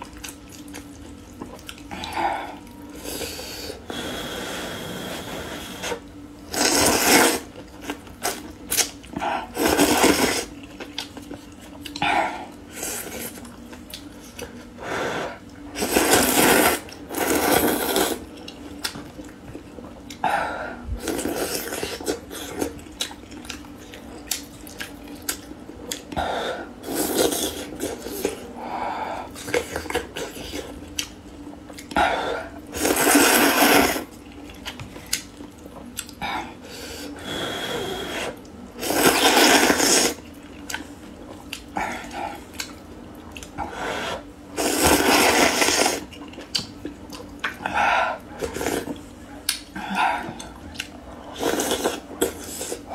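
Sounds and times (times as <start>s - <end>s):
chewing: 0.0s - 2.8s, 21.0s - 26.2s, 34.1s - 36.2s, 39.2s - 43.6s, 44.8s - 52.9s
noodles being slurped: 5.1s - 10.6s, 15.8s - 18.3s, 32.7s - 34.2s, 37.8s - 40.3s, 44.0s - 46.2s.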